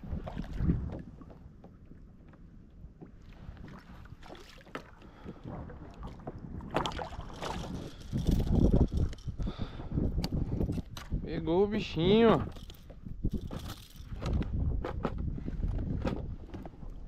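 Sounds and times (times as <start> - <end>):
wind on microphone: 0.0 - 1.4, 5.1 - 17.0.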